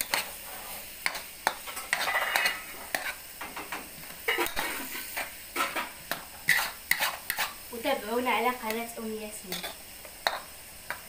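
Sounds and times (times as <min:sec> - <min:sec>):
metal ladle scraping wok: 0:00.0 - 0:03.2, 0:04.3 - 0:07.6
food sizzling: 0:00.0 - 0:11.0.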